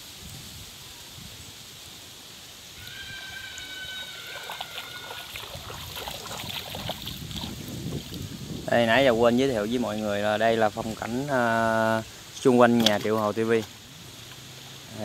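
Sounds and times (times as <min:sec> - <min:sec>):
high whistling calls: 0:02.8 - 0:05.5
water trickling against boat: 0:02.8 - 0:14.9
sharp splashes and knocks: 0:04.3 - 0:08.3.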